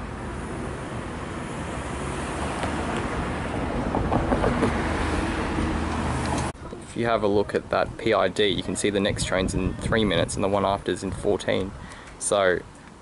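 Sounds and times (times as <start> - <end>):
distant road traffic: 0.0 - 13.0
wind rumbling on microphone: 2.8 - 11.9.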